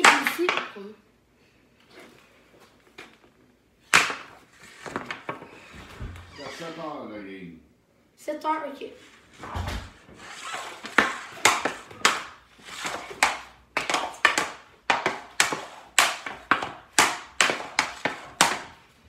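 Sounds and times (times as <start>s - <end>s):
hockey stick and puck clacking: 0.0s - 0.8s, 3.9s - 5.4s, 10.3s - 18.8s.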